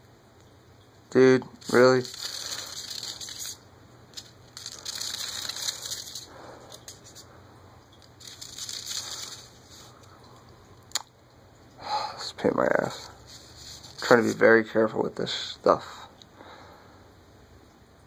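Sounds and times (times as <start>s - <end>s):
paper rustling and scraping: 1.6s - 3.6s, 4.2s - 7.3s, 8.2s - 9.9s, 12.9s - 14.6s.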